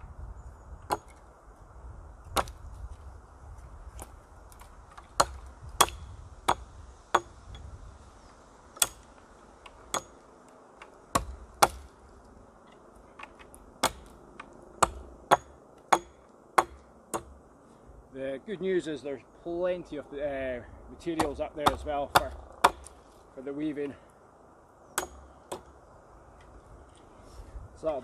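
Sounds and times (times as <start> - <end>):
hatchet chopping wood: 0.8 - 1.2, 2.3 - 2.6, 3.9 - 7.6, 8.8 - 10.2, 10.8 - 11.9, 13.2 - 17.4, 21.1 - 23.0, 25.0 - 25.8.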